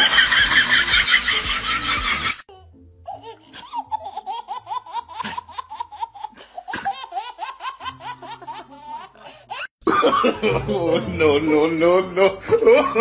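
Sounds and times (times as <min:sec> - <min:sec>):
baby laughing: 0:00.1 - 0:09.7.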